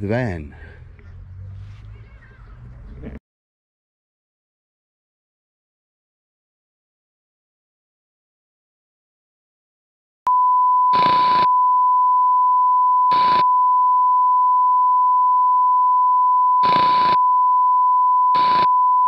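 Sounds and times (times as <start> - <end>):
steady electronic beep tone: 10.3 - 19.0.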